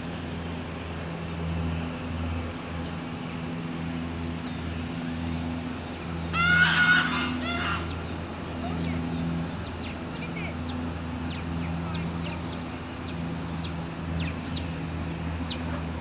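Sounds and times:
low motor hum: 0:00.0 - 0:16.0
geese honking: 0:06.3 - 0:08.1.

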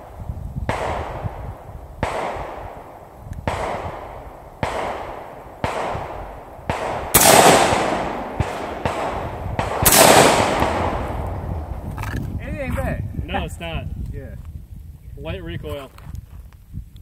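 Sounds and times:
rifle shots with echo: 0:00.1 - 0:11.8.

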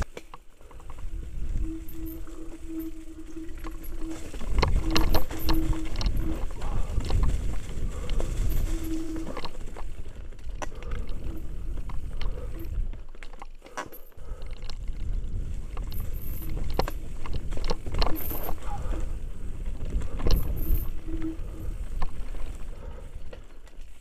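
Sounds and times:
wind rumble on camera: 0:00.0 - 0:13.4, 0:14.2 - 0:24.0
bike rattling over stones: 0:00.0 - 0:24.0.

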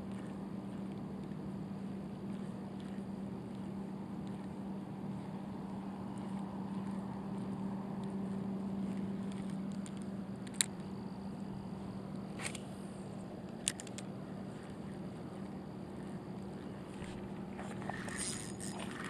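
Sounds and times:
outdoor background noise: 0:00.0 - 0:19.0
steady low hum: 0:00.0 - 0:19.0.

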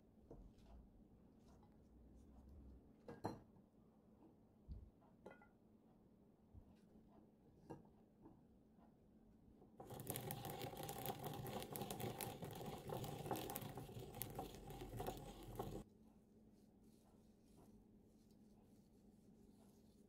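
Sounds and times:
pestle grinding seeds in mortar: 0:09.8 - 0:15.8.

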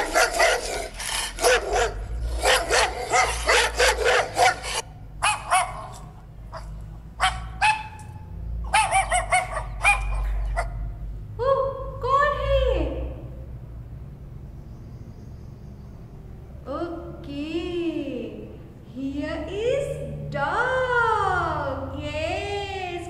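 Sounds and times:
dog barking: 0:00.0 - 0:10.9.

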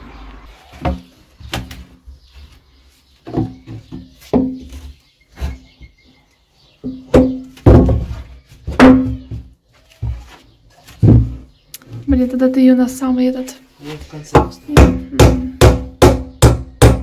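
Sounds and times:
hammer knocking on wooden boards: 0:03.2 - 0:04.7, 0:06.8 - 0:09.6, 0:14.3 - 0:17.0.

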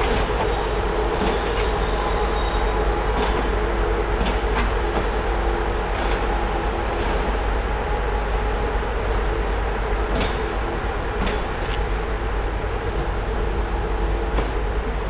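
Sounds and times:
train coaches rumbling past: 0:00.0 - 0:15.0
train wheels clicking: 0:00.0 - 0:15.0.

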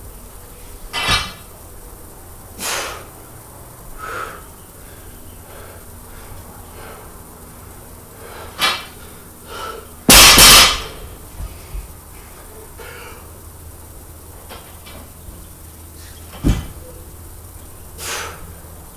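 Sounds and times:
barbell crashing on concrete: 0:00.9 - 0:01.4, 0:10.1 - 0:11.1
person breathing: 0:04.0 - 0:07.2.

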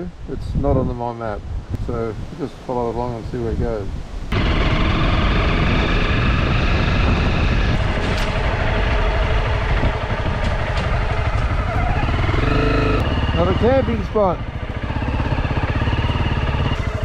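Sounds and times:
motorcycle engine running: 0:04.3 - 0:17.0.

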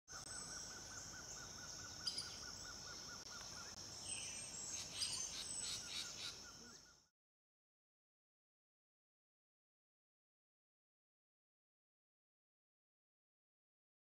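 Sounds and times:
birds calling: 0:00.1 - 0:07.1.

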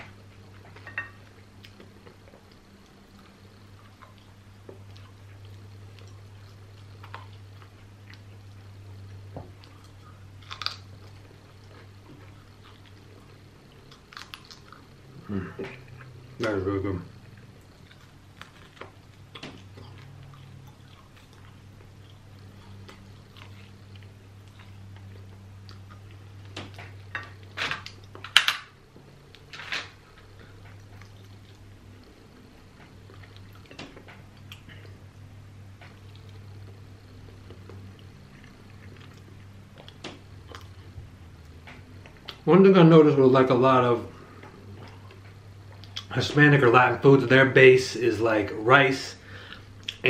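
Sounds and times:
man chewing fried chicken: 0:00.0 - 0:42.5
crunch of chicken: 0:09.6 - 0:16.1.

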